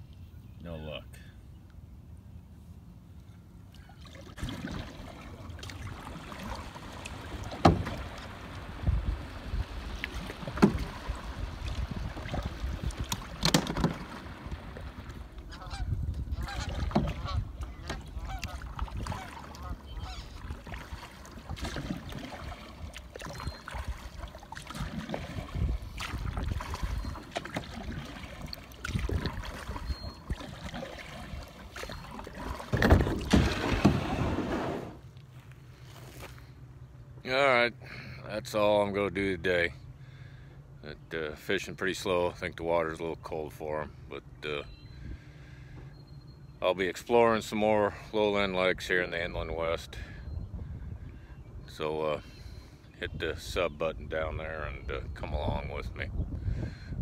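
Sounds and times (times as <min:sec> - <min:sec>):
paddle knocking and splashing: 0:04.0 - 0:35.0
plastic hull grinding on gravel: 0:32.6 - 0:35.0.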